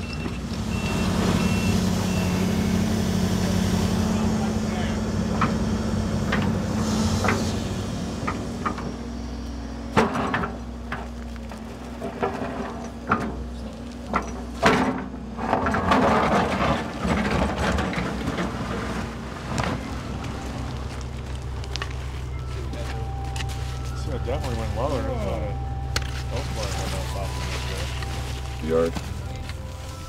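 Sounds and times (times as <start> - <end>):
excavator engine hum: 0.0 - 30.0.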